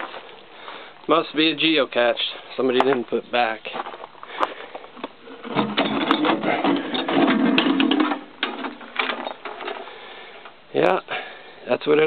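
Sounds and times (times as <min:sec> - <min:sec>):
metal box clattering and scraping: 0:05.2 - 0:09.9.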